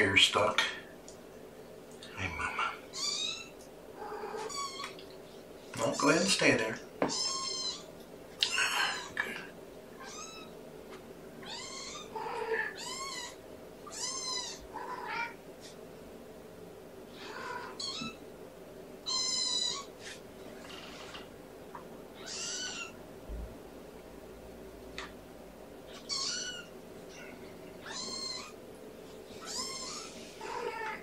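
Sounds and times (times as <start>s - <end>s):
faint steady hum: 0.0s - 31.0s
kittens mewing: 2.1s - 5.0s, 7.0s - 9.4s, 10.0s - 10.6s, 11.4s - 15.4s, 19.1s - 20.2s, 22.2s - 23.0s, 25.9s - 28.6s, 29.3s - 31.0s.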